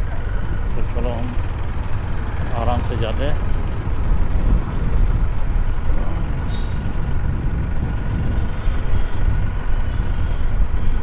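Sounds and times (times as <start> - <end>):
motorcycle engine and road noise: 0.0 - 11.0.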